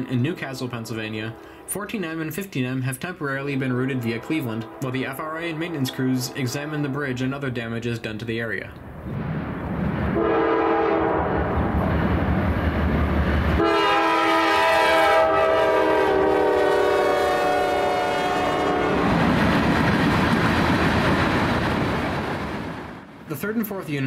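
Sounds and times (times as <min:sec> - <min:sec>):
train air horn blasts: 0:10.2 - 0:11.6, 0:13.6 - 0:19.1
train wheels clacking on rails: 0:19.0 - 0:22.3.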